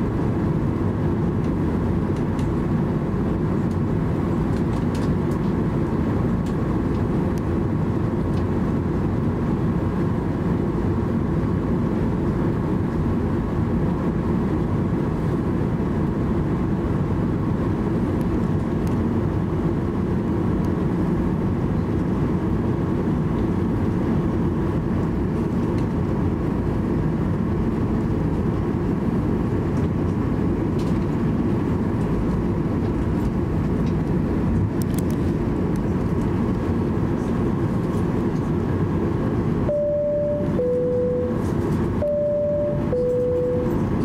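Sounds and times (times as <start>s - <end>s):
airplane cabin rumble: 0.0s - 44.0s
two-tone cabin chime: 39.7s - 41.4s, 42.0s - 43.9s.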